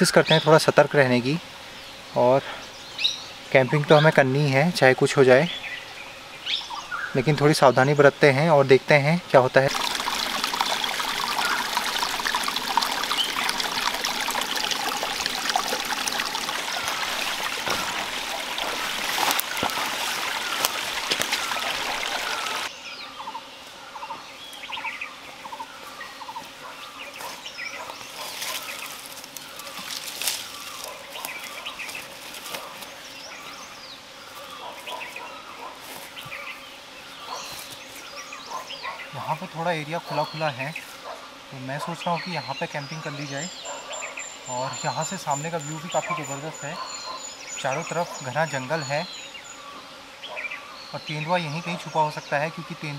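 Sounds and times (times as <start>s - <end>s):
birds calling: 0.0s - 52.9s
rushing like trickling water: 9.7s - 22.7s.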